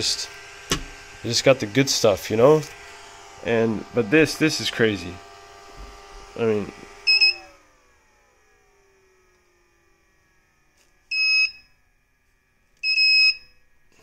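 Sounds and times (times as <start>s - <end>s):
fan spinning down whine: 0.0s - 14.0s
shrill alarm beeps: 7.1s - 7.5s, 11.1s - 11.8s, 12.8s - 13.6s.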